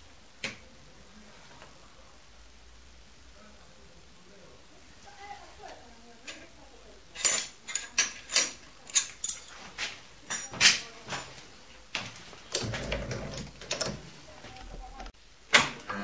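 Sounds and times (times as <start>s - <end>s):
metal tools clinking on wood: 7.2s - 9.7s, 10.3s - 11.4s.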